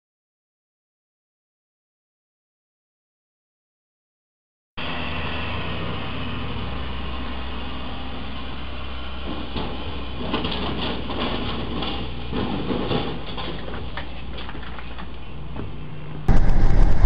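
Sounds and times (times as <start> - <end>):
trailer roof scraping a bridge: 4.8 - 15.0
vehicle rumble: 4.8 - 17.0.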